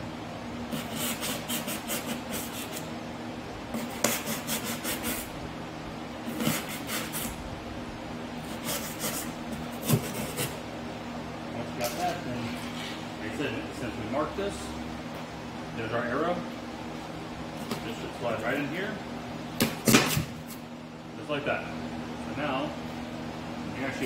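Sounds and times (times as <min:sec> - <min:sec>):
fan hum: 0:00.0 - 0:24.0
knife sawing through foam board: 0:00.7 - 0:02.8, 0:03.8 - 0:05.3, 0:06.3 - 0:07.3, 0:08.5 - 0:10.6.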